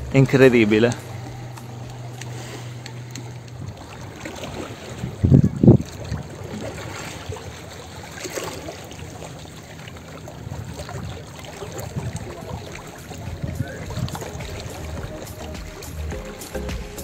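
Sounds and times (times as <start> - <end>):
small waves lapping against rocks: 0.1 - 16.0.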